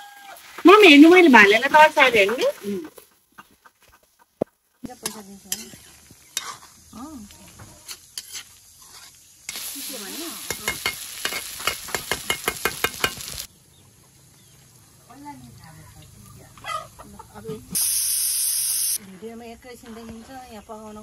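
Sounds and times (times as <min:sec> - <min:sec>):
frying sizzle: 0:00.0 - 0:02.8, 0:04.8 - 0:16.6, 0:17.4 - 0:19.0
metal spoon scraping wok: 0:04.9 - 0:13.4.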